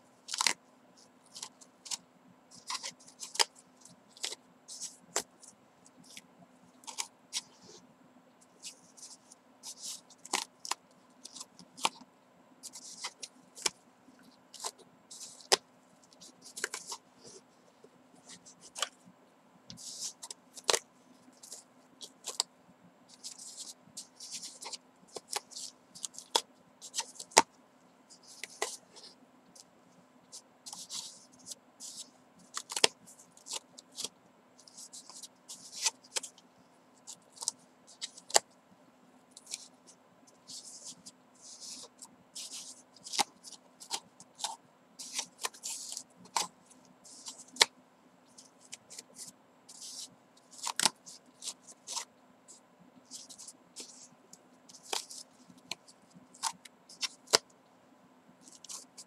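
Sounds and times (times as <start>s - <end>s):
yarn rustling against cardboard: 12.6s - 19.1s, 19.7s - 27.5s, 28.1s - 38.5s, 39.3s - 57.5s.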